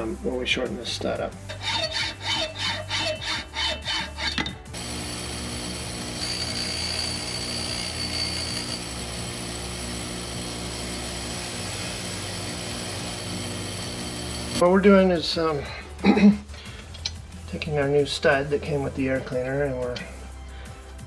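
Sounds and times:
hacksaw cutting steel: 1.4s - 14.6s
metal grinding on wheel: 1.4s - 14.7s
bench grinder running: 1.5s - 14.9s.

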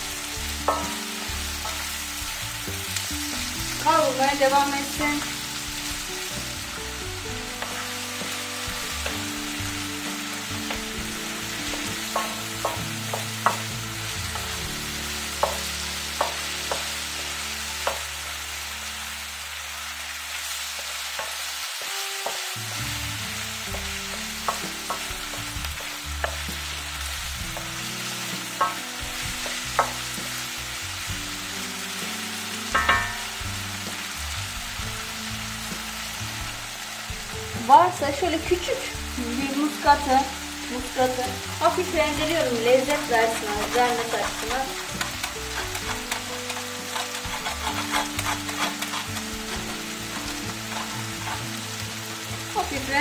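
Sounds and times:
food sizzling in a pan: 0.0s - 53.0s
spatula tapping pan: 0.6s - 1.9s, 10.6s - 14.6s, 15.3s - 17.0s, 17.8s - 18.1s, 20.8s - 22.4s, 23.6s - 26.8s, 28.4s - 30.4s, 32.7s - 33.4s, 42.2s - 52.4s
spatula stirring: 7.4s - 17.0s, 41.8s - 52.6s.

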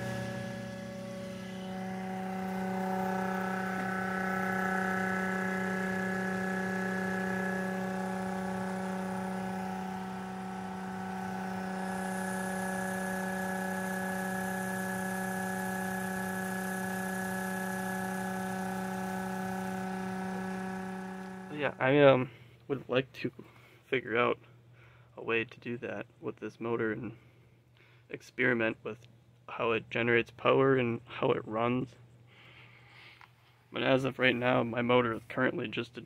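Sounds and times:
motor electrical hum: 0.0s - 22.6s.

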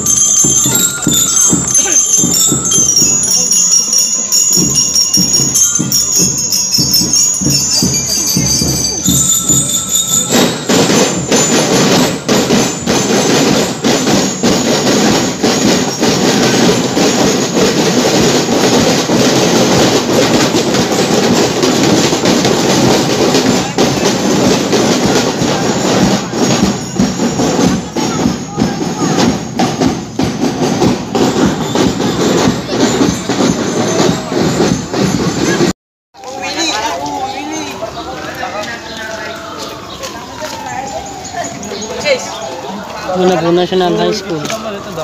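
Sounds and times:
marching snare and bass drums: 0.0s - 35.7s.

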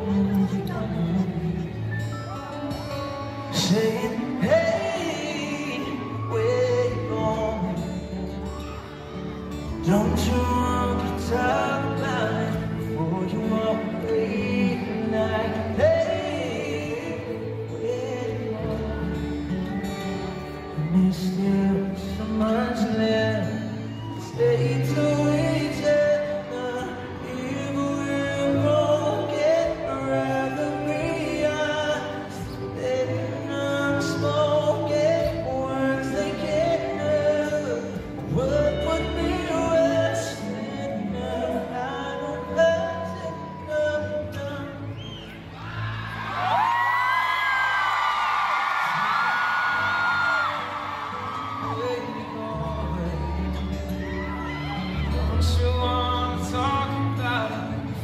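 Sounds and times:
acoustic guitar: 0.0s - 58.0s
men singing: 9.8s - 19.4s, 20.8s - 44.7s.

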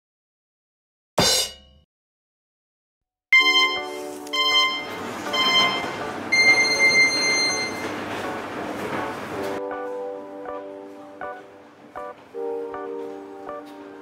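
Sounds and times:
chime-like music notes: 3.4s - 7.9s.

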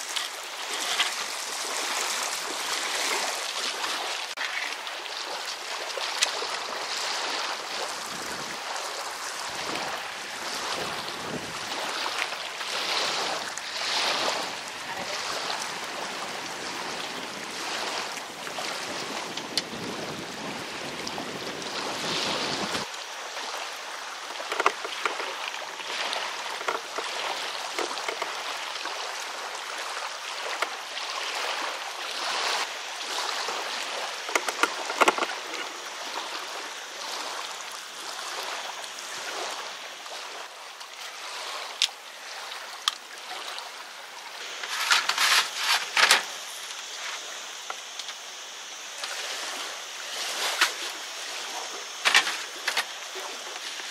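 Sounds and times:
lapping lake water: 0.0s - 53.9s
wind hiss: 0.0s - 53.9s
camping gear rattling: 24.4s - 28.4s, 34.1s - 35.8s, 44.5s - 47.2s, 52.0s - 53.9s.

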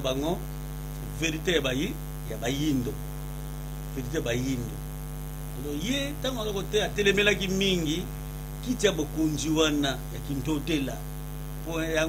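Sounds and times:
man talking: 0.0s - 0.4s, 1.1s - 3.0s, 3.9s - 4.8s, 5.6s - 11.0s, 11.7s - 12.0s
electrical mains hum: 0.0s - 12.0s.

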